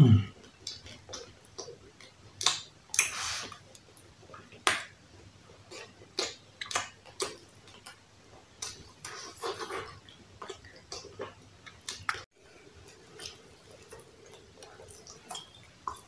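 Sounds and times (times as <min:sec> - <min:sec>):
wet chewing clicks and smacks: 0:00.4 - 0:05.0, 0:05.6 - 0:12.3.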